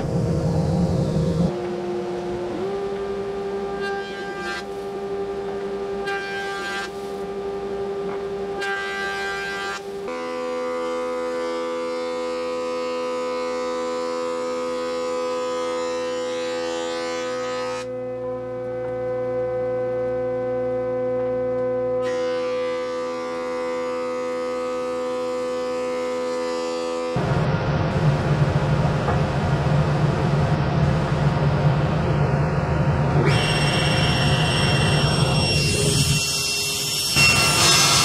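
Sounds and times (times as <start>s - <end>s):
jointer cutting board: 33.2s - 38.0s.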